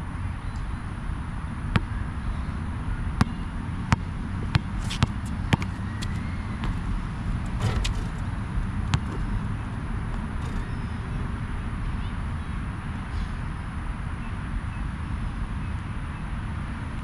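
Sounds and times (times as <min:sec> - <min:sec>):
steady low rumble: 0:00.0 - 0:17.0
basketball bouncing: 0:03.2 - 0:10.8.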